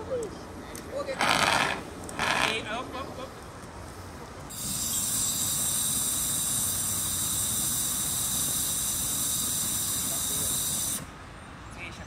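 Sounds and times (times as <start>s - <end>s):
fire extinguisher hissing: 4.5s - 11.1s.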